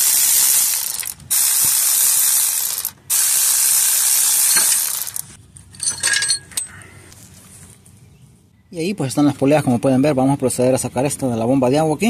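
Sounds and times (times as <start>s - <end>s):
air ratchet running: 0.0s - 5.3s.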